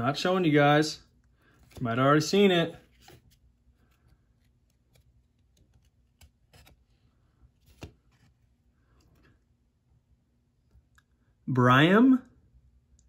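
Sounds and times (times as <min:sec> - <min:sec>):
trading cards rustling: 0:01.4 - 0:09.3.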